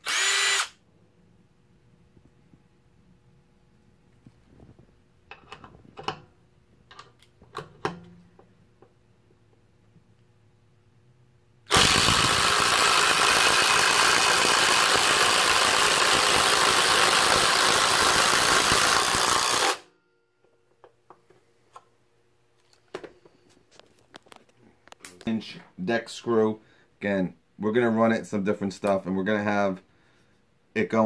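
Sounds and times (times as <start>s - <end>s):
impact driver hammering: 11.7s - 19.8s.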